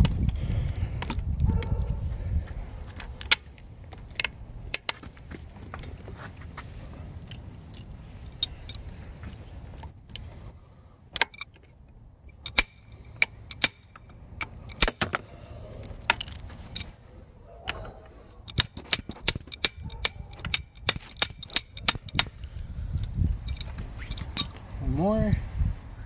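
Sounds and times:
socket wrench clicking: 11.2 - 15.2, 17.6 - 24.6.

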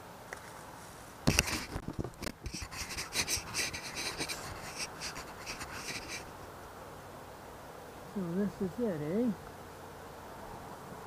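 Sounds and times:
scraping against camera: 0.3 - 6.3.

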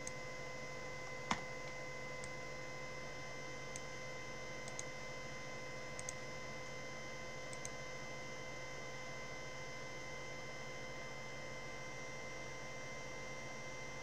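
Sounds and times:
computer mouse clicks: 4.6 - 4.9, 6.0 - 6.2, 7.5 - 7.8.

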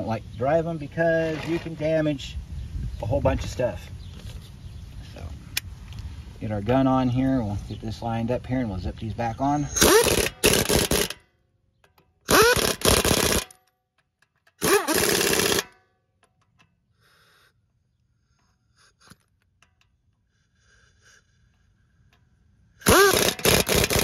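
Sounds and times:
impact wrench bursts: 9.6 - 11.2, 11.9 - 13.6, 14.4 - 16.7, 22.8 - 24.0.

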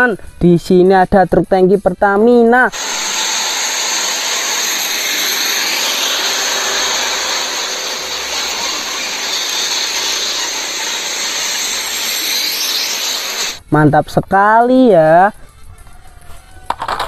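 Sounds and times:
truck driving past: 2.8 - 13.6.

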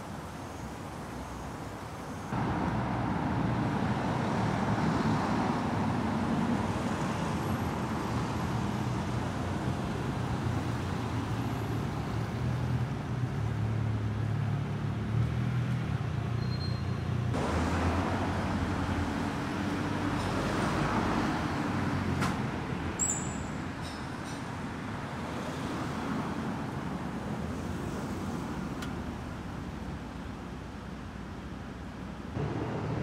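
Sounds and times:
cars driving past: 2.3 - 15.9, 17.3 - 23.2, 32.3 - 33.0.

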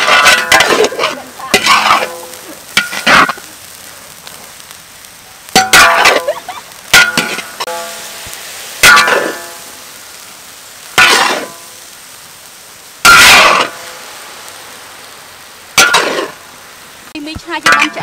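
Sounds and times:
metal spatula striking wok: 0.0 - 3.4, 5.6 - 6.3, 6.9 - 9.8, 11.0 - 11.7, 13.0 - 14.0, 15.8 - 16.4, 17.6 - 18.0
faint steady hiss: 0.0 - 18.0.

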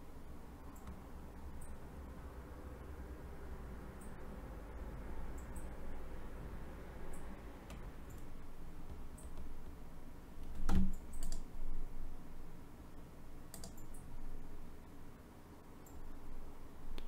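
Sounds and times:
keyboard and mouse clicks: 0.7 - 1.0, 7.1 - 9.7, 10.4 - 11.5, 13.5 - 14.1.

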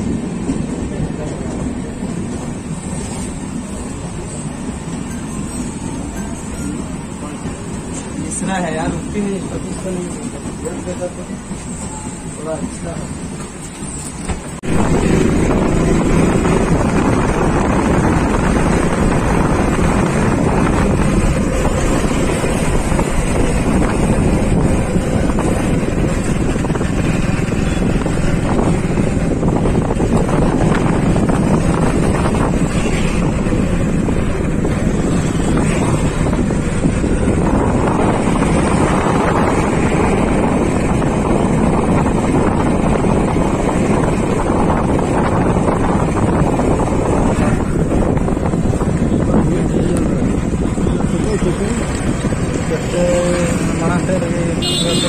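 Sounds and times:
motorcycle engine and road noise: 0.0 - 11.7, 12.3 - 55.0
wind buffeting microphone: 13.2 - 54.6.

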